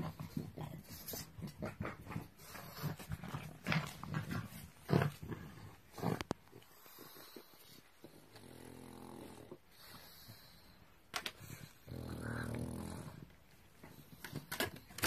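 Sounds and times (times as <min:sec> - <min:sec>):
dog growling low: 0:11.5 - 0:13.4.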